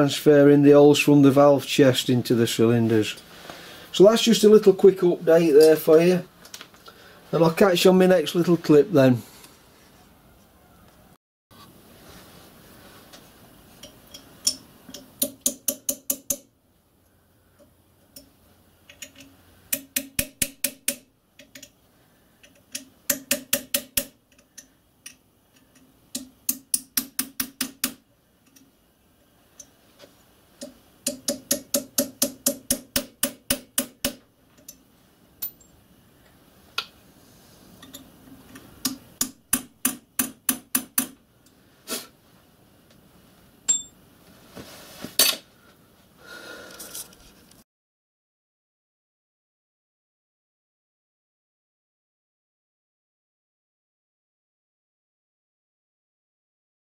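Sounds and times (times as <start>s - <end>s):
hammer tapping metal punch: 13.8s - 16.5s, 18.9s - 21.7s, 22.4s - 25.2s, 26.1s - 28.6s, 30.6s - 34.8s, 38.8s - 41.2s, 43.7s - 44.0s.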